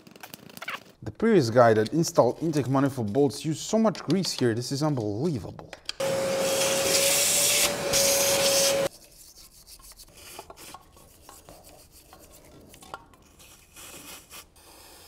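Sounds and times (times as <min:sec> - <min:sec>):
scrubbing and rubbing: 0:08.5 - 0:14.6.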